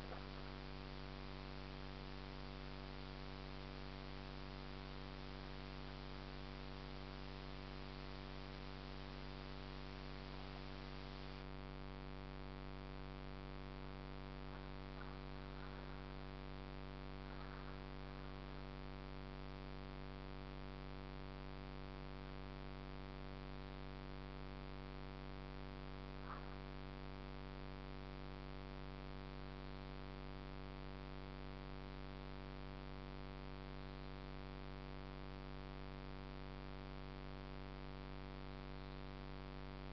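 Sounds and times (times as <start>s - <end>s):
background hiss: 0.0s - 11.5s
buzzy electrical hum: 0.0s - 39.9s.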